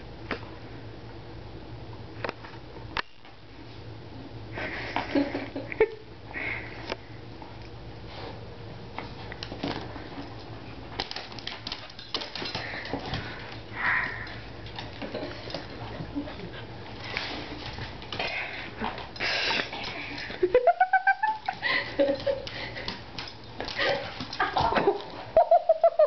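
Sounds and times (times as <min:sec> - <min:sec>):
dog claws on wooden floor: 0:09.0 - 0:16.1, 0:22.0 - 0:25.2.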